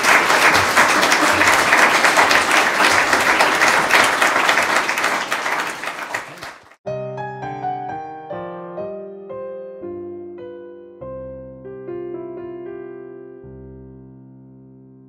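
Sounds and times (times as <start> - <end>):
audience applauding: 0.0 - 6.8.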